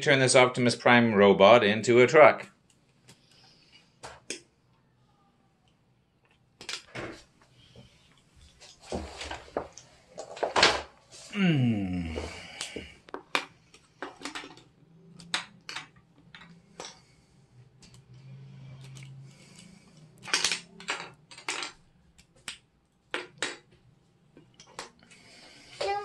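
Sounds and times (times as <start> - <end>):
plastic bricks clicking: 13.1 - 17.0, 20.2 - 23.7.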